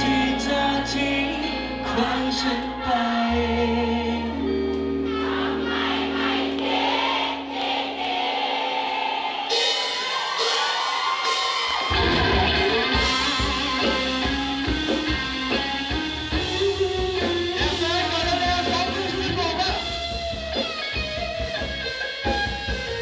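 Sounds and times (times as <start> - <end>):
man singing pop-rock with band: 0.0 - 4.7, 12.2 - 20.2
drums and bass beat: 9.5 - 23.0.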